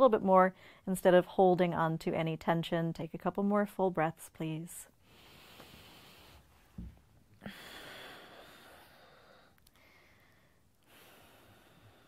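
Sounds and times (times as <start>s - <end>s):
woman breathing: 0.6s - 0.9s, 5.0s - 12.0s.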